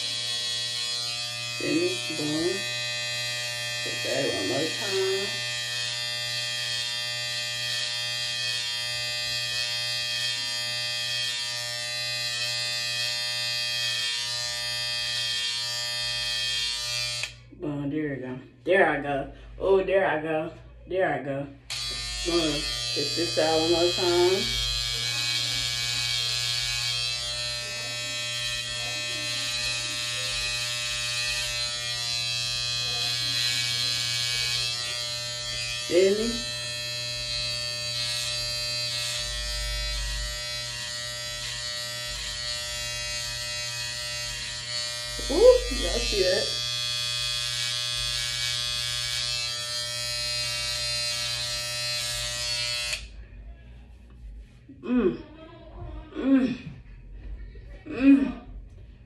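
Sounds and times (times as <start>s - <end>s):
electric hair trimmer buzzing: 0.0s - 17.4s, 21.7s - 53.2s.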